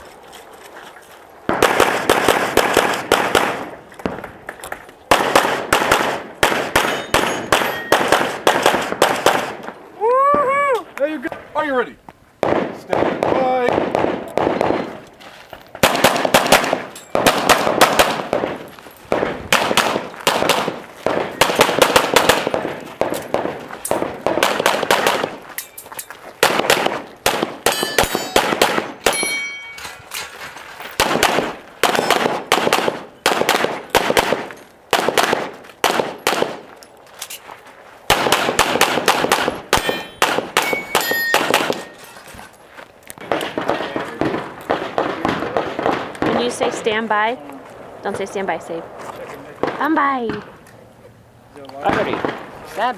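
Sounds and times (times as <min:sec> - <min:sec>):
rapid pistol fire: 0:01.5 - 0:04.2, 0:05.1 - 0:09.6, 0:12.4 - 0:14.9, 0:15.8 - 0:25.4, 0:26.4 - 0:29.2, 0:31.0 - 0:36.6, 0:38.1 - 0:41.9, 0:43.3 - 0:46.7, 0:51.8 - 0:52.5
steel targets clanging: 0:16.9 - 0:17.2, 0:25.5 - 0:26.2, 0:27.7 - 0:30.4, 0:39.8 - 0:42.4.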